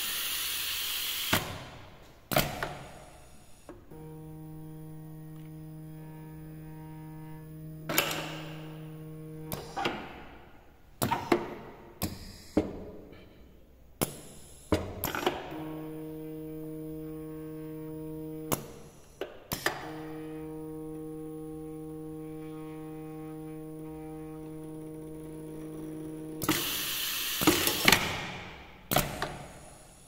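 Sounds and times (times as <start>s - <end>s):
motor hum: 3.8s - 10.4s, 15.5s - 18.8s, 19.6s - 28.6s
pneumatic valves clacking: 26.4s - 28.2s, 28.9s - 30.0s.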